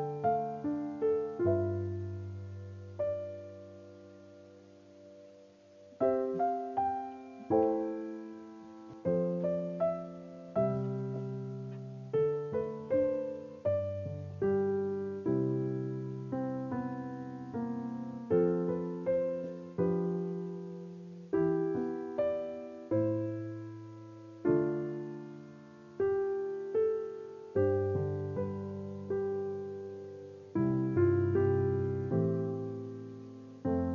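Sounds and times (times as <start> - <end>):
slow piano chords: 0.0 - 33.9.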